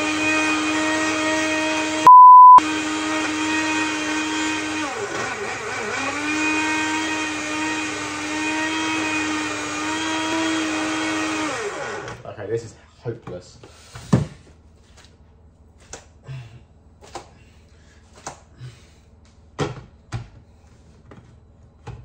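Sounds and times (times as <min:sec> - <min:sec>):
blender motor running: 0:00.0 - 0:12.2
loud steady beep: 0:02.1 - 0:02.6.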